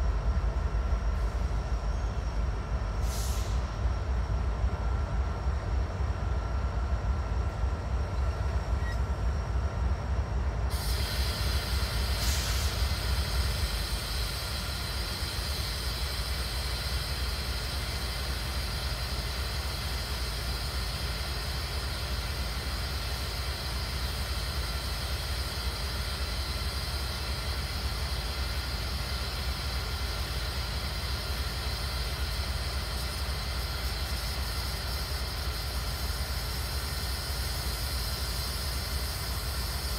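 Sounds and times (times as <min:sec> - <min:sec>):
diesel locomotive idling: 0:00.0 - 0:39.9
steady hiss: 0:10.7 - 0:39.9.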